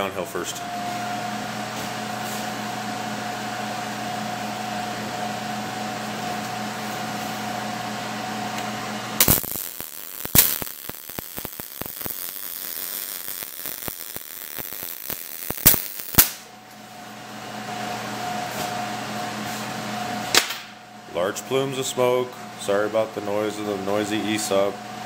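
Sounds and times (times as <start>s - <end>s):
shop fan humming: 0.0s - 25.0s
welding arc crackling and popping: 9.2s - 16.5s.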